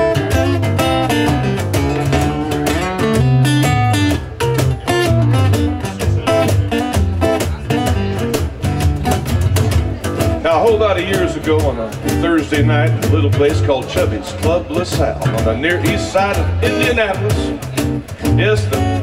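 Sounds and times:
acoustic guitar strummed: 0:00.0 - 0:19.0
conga drums: 0:00.0 - 0:19.0
electric bass line: 0:00.0 - 0:19.0.

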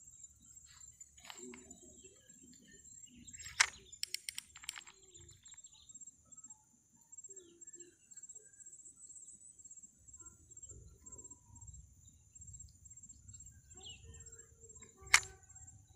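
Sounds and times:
crickets chirping: 0:00.0 - 0:15.9
sharp clicks: 0:01.2 - 0:01.7, 0:03.3 - 0:05.6, 0:14.8 - 0:15.4.

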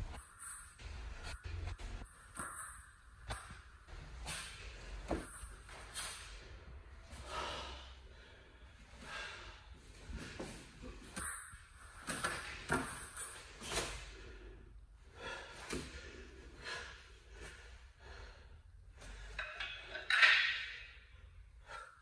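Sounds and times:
wooden baton swishing: 0:00.0 - 0:07.3, 0:09.9 - 0:14.3.

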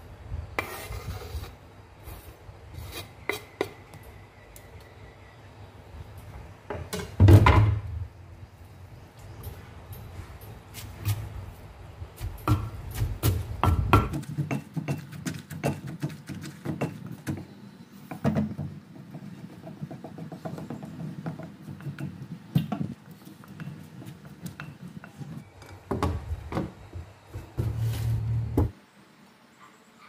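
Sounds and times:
spoon knocking and scraping mortar: 0:02.8 - 0:03.9, 0:12.2 - 0:26.2.

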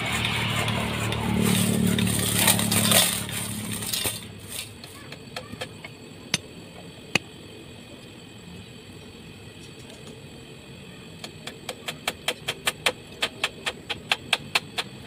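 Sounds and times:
engine running: 0:00.0 - 0:15.0
sharp taps and knocks: 0:11.2 - 0:15.0.

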